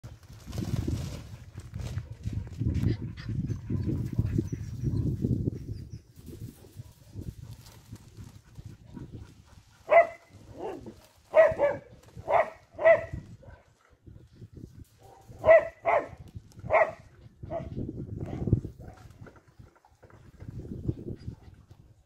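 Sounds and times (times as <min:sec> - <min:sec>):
dog barking: 0:09.8 - 0:13.7, 0:15.0 - 0:17.7.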